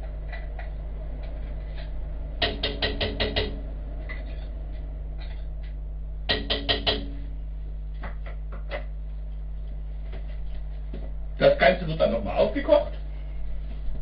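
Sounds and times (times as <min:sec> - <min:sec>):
metal utensil knocking on pot: 0:06.3 - 0:07.2.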